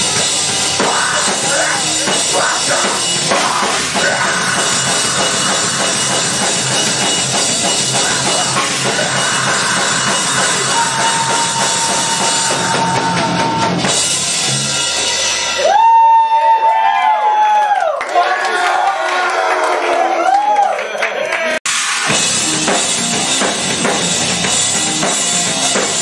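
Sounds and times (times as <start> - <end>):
live rock band playing: 0.0 - 15.7, 21.7 - 26.0
drum kit beat: 0.0 - 16.2, 21.7 - 26.0.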